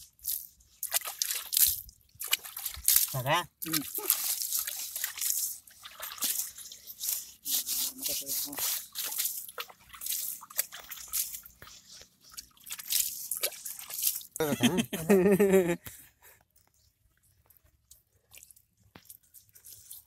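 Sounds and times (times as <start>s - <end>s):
water splashing and dripping: 0.0s - 14.4s
wet squelching and rubbing: 0.0s - 14.4s, 17.6s - 20.0s
person speaking: 3.2s - 4.2s, 7.5s - 8.8s, 14.4s - 15.8s.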